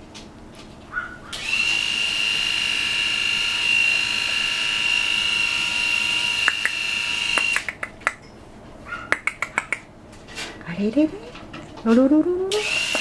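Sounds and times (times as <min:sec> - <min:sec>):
small electric motor whining: 0:01.3 - 0:07.7, 0:12.5 - 0:13.0.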